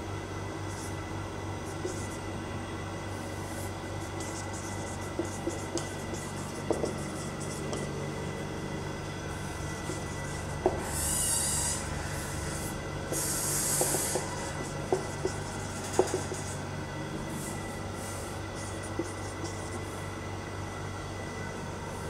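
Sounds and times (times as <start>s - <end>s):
marker writing on whiteboard: 1.7s - 2.2s, 3.4s - 7.9s, 9.7s - 11.8s, 12.5s - 16.6s, 18.6s - 19.8s.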